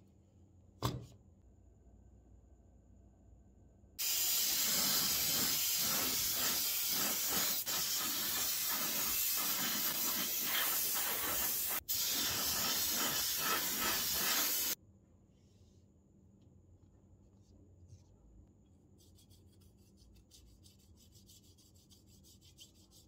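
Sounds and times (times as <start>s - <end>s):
heat gun air hiss: 4.0s - 14.8s.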